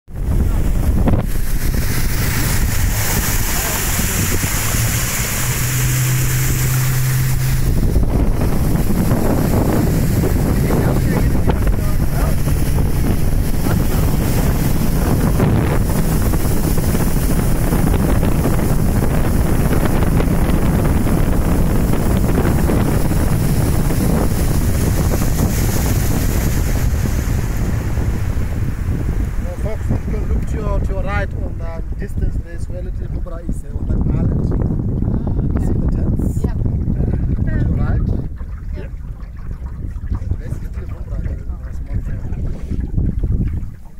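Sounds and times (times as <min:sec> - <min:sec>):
motorboat engine hum: 0:00.1 - 0:43.9
water rushing past hull: 0:00.1 - 0:43.9
wind buffeting microphone: 0:00.1 - 0:43.9.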